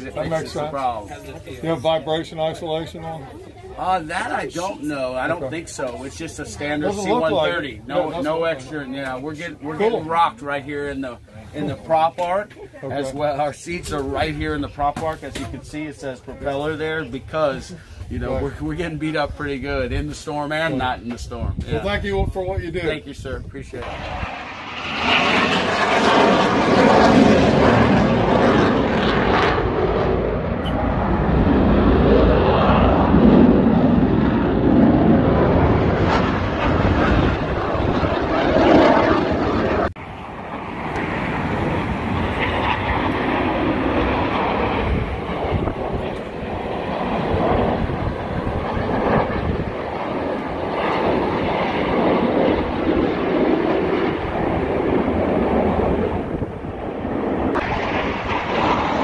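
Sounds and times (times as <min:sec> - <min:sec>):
jet aircraft flying over: 0:20.6 - 0:59.0.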